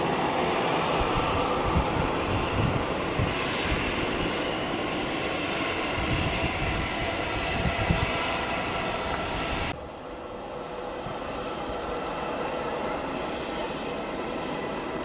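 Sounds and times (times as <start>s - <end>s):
wind buffeting microphone: 0.0s - 9.8s
jet engines whining: 0.0s - 15.0s.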